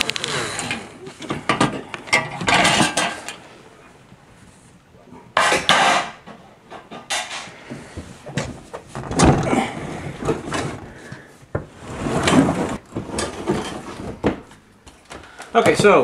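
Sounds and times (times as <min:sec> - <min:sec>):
scraping rubs: 0:09.8 - 0:14.2.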